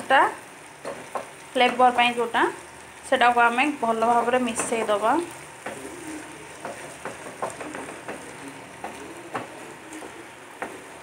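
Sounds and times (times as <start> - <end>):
food sizzling in a frying pan: 0.0 - 11.0
spatula knocking and scraping pan: 0.8 - 1.8, 4.0 - 11.0.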